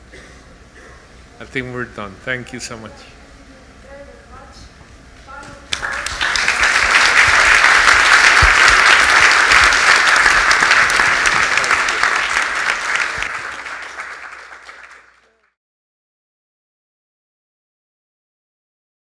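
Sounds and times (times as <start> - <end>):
audience applauding: 5.7 - 15.6.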